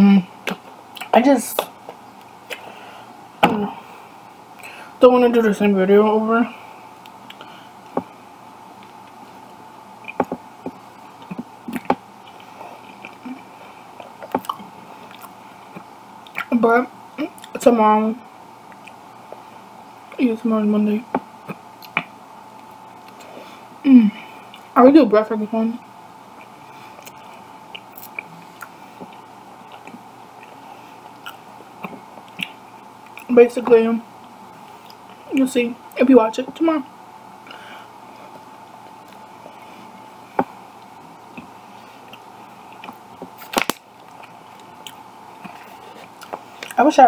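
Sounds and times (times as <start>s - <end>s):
person chewing food: 7.0s - 8.0s, 8.8s - 16.5s, 18.7s - 19.5s, 21.4s - 23.4s, 24.4s - 24.7s, 26.3s - 33.3s, 34.2s - 35.4s, 38.3s - 46.8s.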